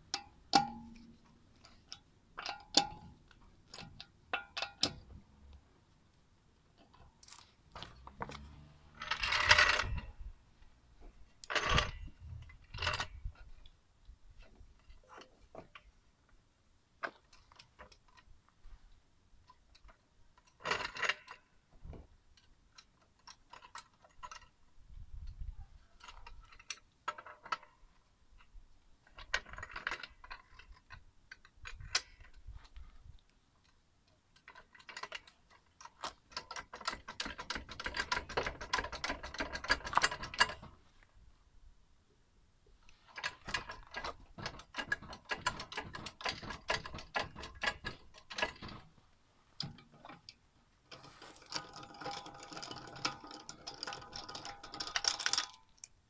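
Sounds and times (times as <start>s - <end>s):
floor jack metal clicks and clatter: 34.4s - 40.8s, 43.1s - 49.0s, 49.6s - 55.9s.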